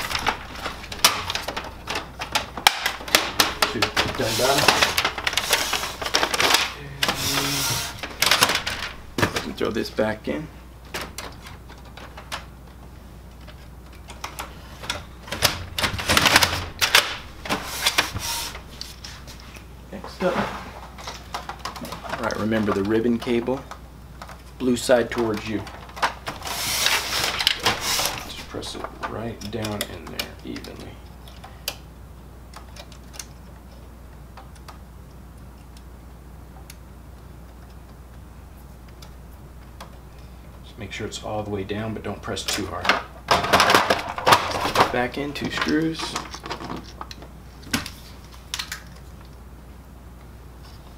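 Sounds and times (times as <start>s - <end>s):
hard plastic clicking and rattling: 0.0s - 6.8s, 8.0s - 9.6s, 10.9s - 18.2s
steady low hum: 0.0s - 50.9s.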